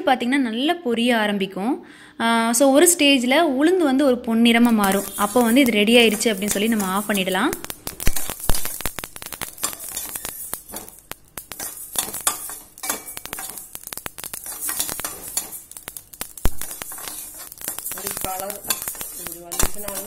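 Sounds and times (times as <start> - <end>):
seeds clicking and crackling: 4.6 - 20.0
spoon stirring seeds in metal pan: 4.6 - 20.0.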